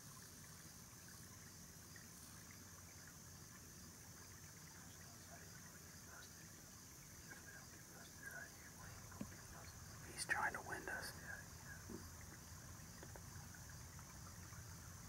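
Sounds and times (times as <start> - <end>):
faint background hiss: 0.0 - 15.0
tiny ticks: 11.9 - 13.3.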